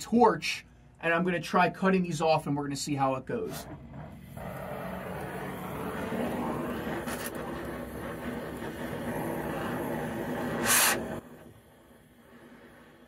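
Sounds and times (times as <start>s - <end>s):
cutting torch flame hissing: 3.4s - 13.0s.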